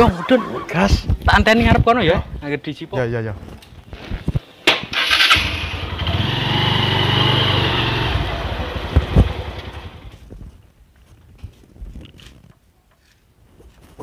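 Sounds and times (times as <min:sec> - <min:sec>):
motorcycle engine riding past: 0:05.1 - 0:10.1.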